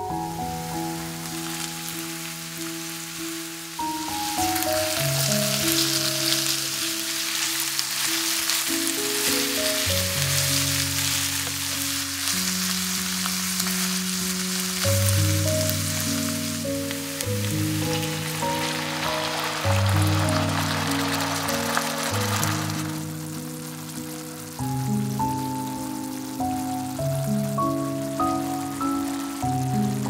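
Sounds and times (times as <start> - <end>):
slow background music: 0.0 - 30.0
vegetables sizzling in oil: 0.0 - 30.0.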